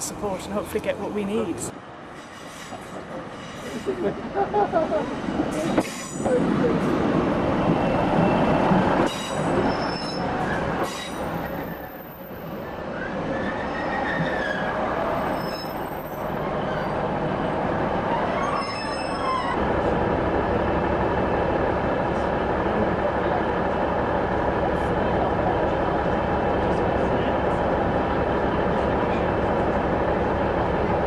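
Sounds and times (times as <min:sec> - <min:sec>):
train wheels rumbling on rails: 0:00.0 - 0:31.0
faint wheel squeal: 0:09.1 - 0:11.4, 0:13.0 - 0:17.0, 0:18.1 - 0:19.6.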